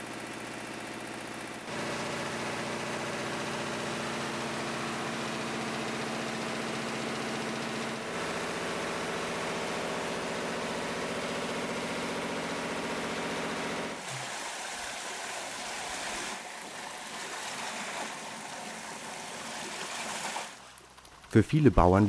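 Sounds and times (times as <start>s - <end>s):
machine droning: 0.0s - 14.1s
rushing water carrying beans: 13.9s - 21.2s.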